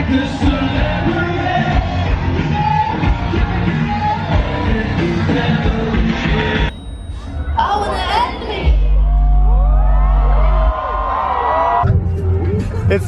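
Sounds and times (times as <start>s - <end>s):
live music with strong bass beat: 0.0s - 13.0s
crowd yelling along: 7.1s - 12.4s.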